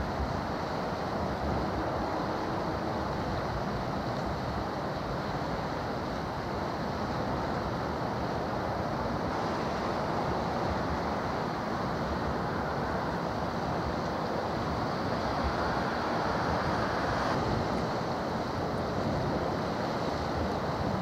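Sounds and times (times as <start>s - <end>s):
choppy water washing: 0.0s - 21.0s.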